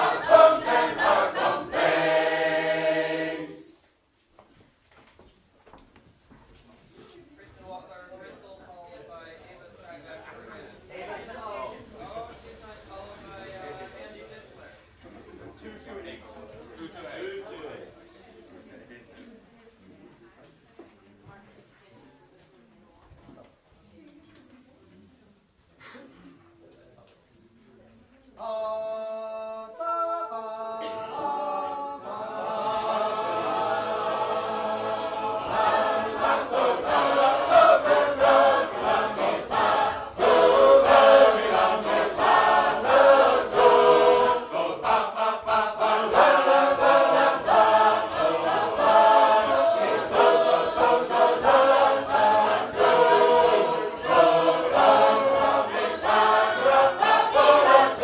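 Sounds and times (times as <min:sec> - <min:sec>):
choir singing in harmony: 0:00.0 - 0:03.8, 0:28.5 - 0:58.0.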